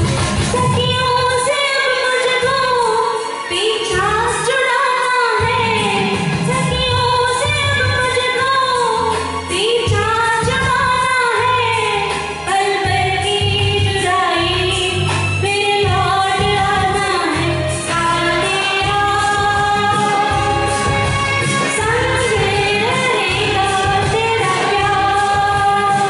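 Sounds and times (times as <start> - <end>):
recorded backing music with beat: 0.0 - 26.0
woman singing into a microphone: 0.0 - 26.0.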